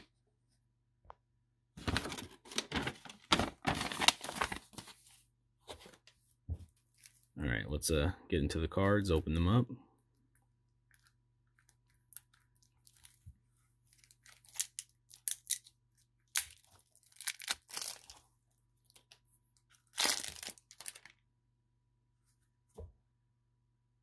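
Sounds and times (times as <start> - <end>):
plastic wrap crinkling: 1.8 - 5.1, 10.9 - 15.7, 16.3 - 18.3, 19.0 - 21.2
plastic wrap tearing: 1.9 - 4.8, 16.3 - 18.2, 19.8 - 21.2.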